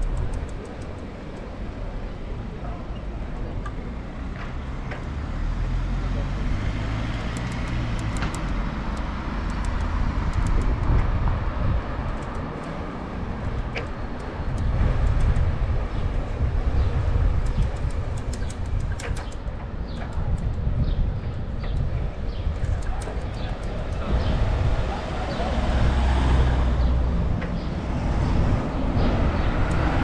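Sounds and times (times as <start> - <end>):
light clicks and rattles: 0.0 - 1.6, 17.4 - 20.6, 21.3 - 24.2
bicycle tyre and road noise: 0.0 - 30.0
wind rumbling on microphone: 0.0 - 30.0.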